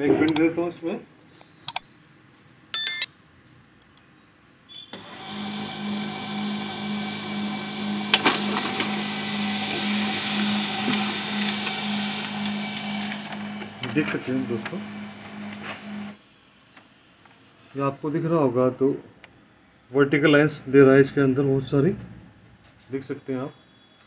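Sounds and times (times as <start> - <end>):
printer chirp: 2.8 - 3.1.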